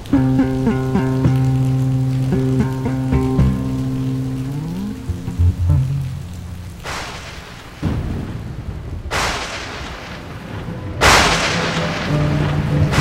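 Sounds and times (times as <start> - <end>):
low sustained music notes: 0.0 - 7.6, 10.5 - 13.0
low rumble: 0.0 - 9.2
thunder claps: 0.0 - 13.0.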